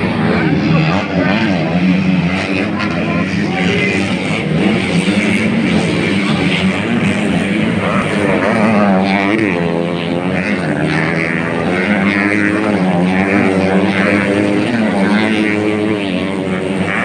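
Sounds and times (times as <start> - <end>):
dirt bike engines revving: 0.0 - 17.0.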